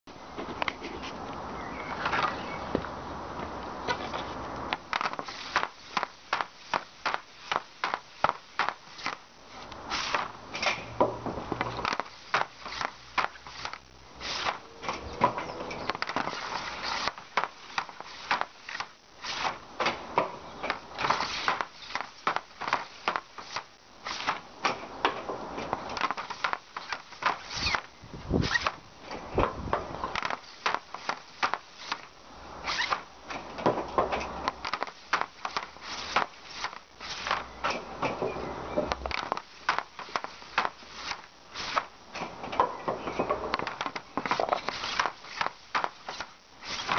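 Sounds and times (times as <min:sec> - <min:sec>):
hockey stick clacking on shooting pad: 0:04.7 - 0:09.2, 0:10.1 - 0:13.8, 0:19.8 - 0:27.8, 0:29.4 - 0:32.1, 0:32.8 - 0:46.9.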